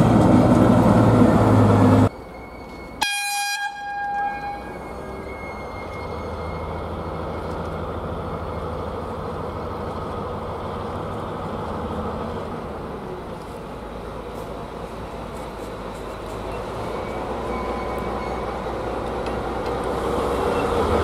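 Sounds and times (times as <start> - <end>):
diesel locomotive engine drone: 0.0 - 21.0.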